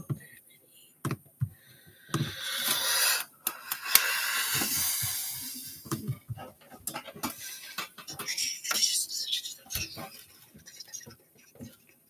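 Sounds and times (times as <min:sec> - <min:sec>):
person exhaling hard: 0:01.6 - 0:05.8.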